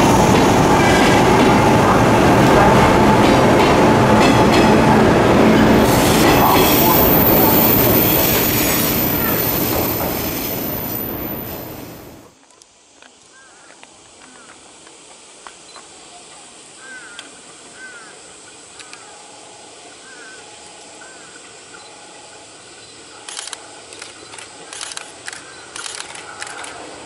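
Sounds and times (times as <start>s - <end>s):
electric train passing: 0.0s - 12.3s.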